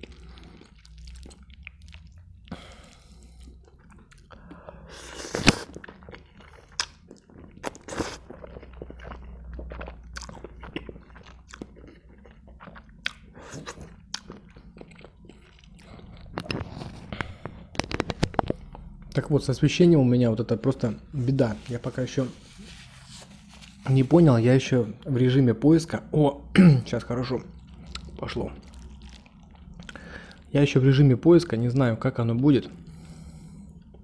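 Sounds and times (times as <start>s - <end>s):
wet open-mouth chewing: 0.0s - 19.0s, 27.5s - 30.5s
person slurping noodles: 4.8s - 5.9s.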